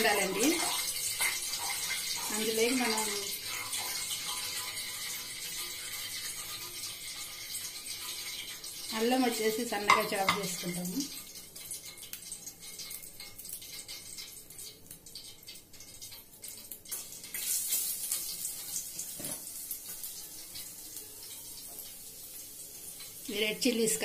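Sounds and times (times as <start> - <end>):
ginger sizzling in hot oil: 0.0 - 24.0
steel spoon knocking pan: 9.8 - 10.6.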